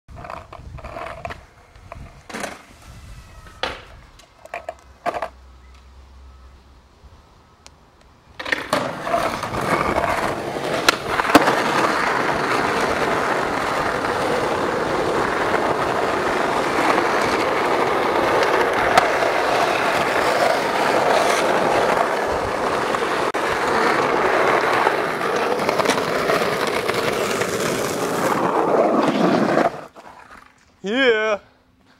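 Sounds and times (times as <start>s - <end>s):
skateboard wheels rolling on concrete: 0.1s - 31.9s.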